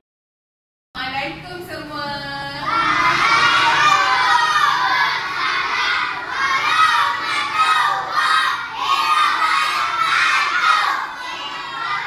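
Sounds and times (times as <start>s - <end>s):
children shouting in unison: 2.6s - 12.0s.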